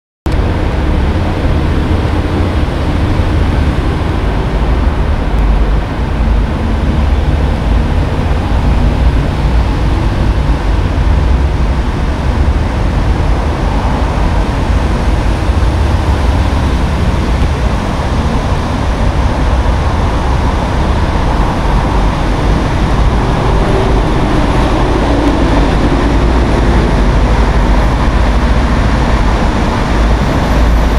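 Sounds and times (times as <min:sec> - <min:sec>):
buses passing: 0:00.3 - 0:30.9
road traffic: 0:00.3 - 0:30.9.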